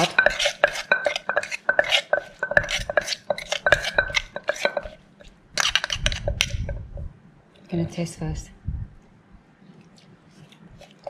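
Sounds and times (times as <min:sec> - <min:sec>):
wooden pestle pounding in mortar: 0:00.0 - 0:05.0
spoon stirring in mortar: 0:00.0 - 0:07.0, 0:09.8 - 0:11.0.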